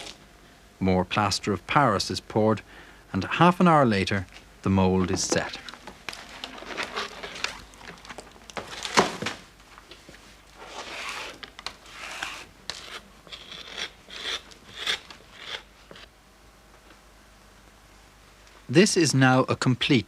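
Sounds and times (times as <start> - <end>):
tool scraping plaster: 10.6 - 16.1.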